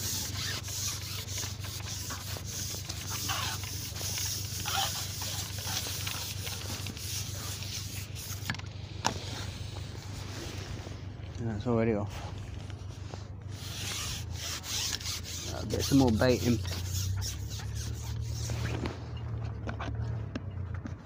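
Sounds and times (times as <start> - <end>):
fishing pole rubbing and tapping: 0.0 - 10.2, 13.8 - 18.9
steady low hum: 0.0 - 21.0.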